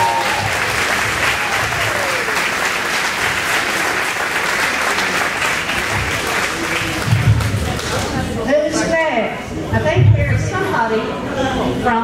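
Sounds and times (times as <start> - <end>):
people applauding: 0.0 - 8.4.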